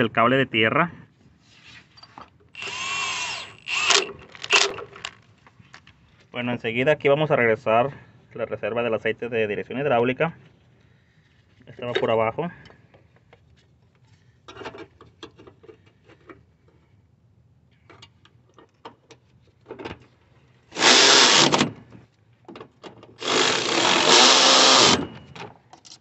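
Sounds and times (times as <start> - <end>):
cordless electric ratchet running: 2.6 - 4.8, 20.8 - 21.6, 23.2 - 25.1.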